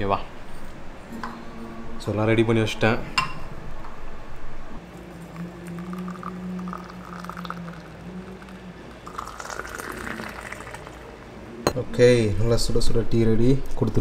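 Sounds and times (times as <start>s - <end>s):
low steady hum: 0.0s - 14.0s
tea pouring into steel tumbler: 4.8s - 11.4s.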